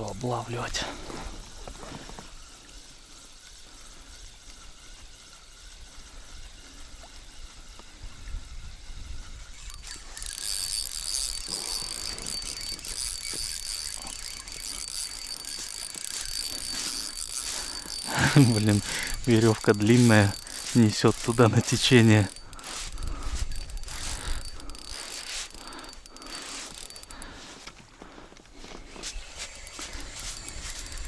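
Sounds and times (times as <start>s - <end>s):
spinning reel whirring: 0.2s - 27.7s, 28.9s - 31.0s.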